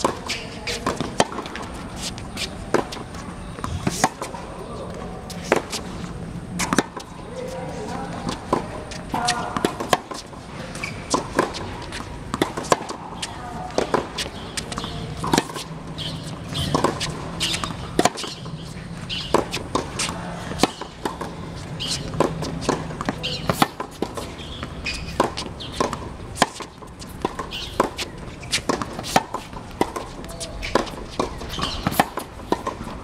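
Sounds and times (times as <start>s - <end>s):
racket hitting tennis ball: 0.0s - 7.1s, 7.7s - 33.0s
tennis ball bouncing: 0.0s - 7.2s, 7.8s - 33.0s
shoe scuffs on court: 0.3s - 6.1s, 13.2s - 32.6s.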